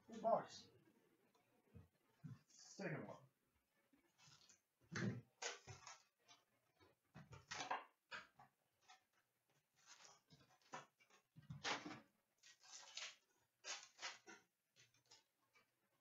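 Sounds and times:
wrapper rustling and crinkling: 12.4s - 15.2s.

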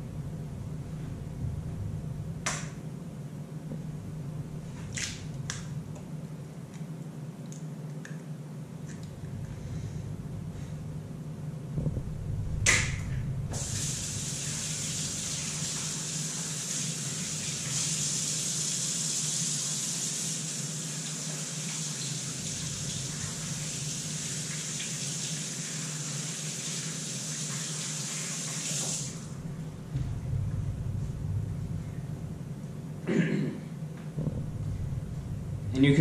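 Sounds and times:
faucet running into sink: 13.6s - 29.3s.

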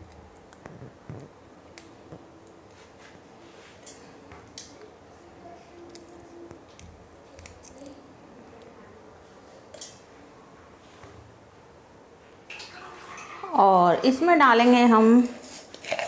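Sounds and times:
cardamom pods cracking: 0.0s - 2.8s, 5.8s - 8.8s, 15.2s - 16.0s.

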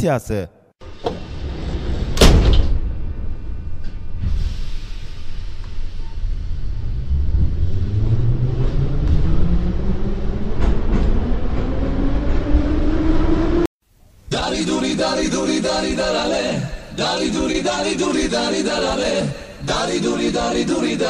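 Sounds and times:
metro train rumbling: 0.9s - 13.7s
music: 14.4s - 21.0s.

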